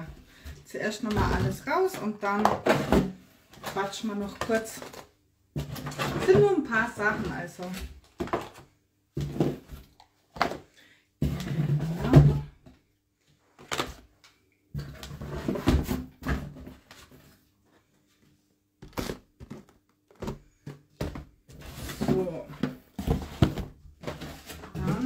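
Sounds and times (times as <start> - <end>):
knocks and thuds of items: 0.0 - 3.2, 5.5 - 12.8, 14.8 - 16.9, 18.8 - 25.0
rustling of packing and cardboard: 0.0 - 14.1, 14.7 - 25.0.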